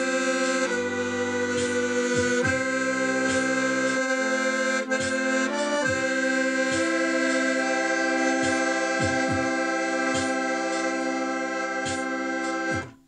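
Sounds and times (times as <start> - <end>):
accordion sustained chord: 0.0 - 13.0
low drum-like hits: 8.4 - 9.6.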